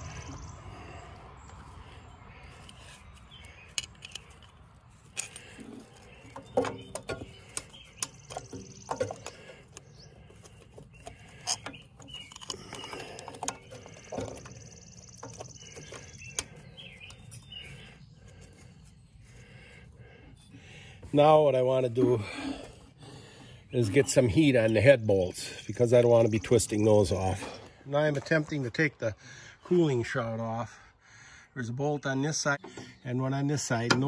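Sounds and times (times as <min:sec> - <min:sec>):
birds chirping: 0:00.0 - 0:34.0
engine cover clicks and knocks: 0:06.3 - 0:09.8, 0:33.8 - 0:34.0.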